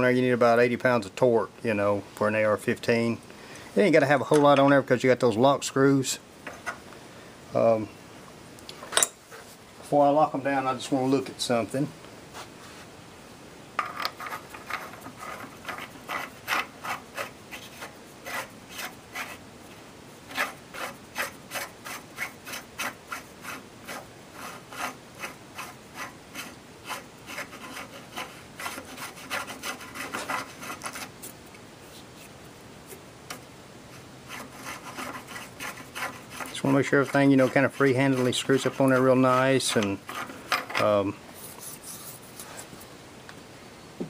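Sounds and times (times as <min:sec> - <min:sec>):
metal scraping against metal: 0:34.3 - 0:42.7.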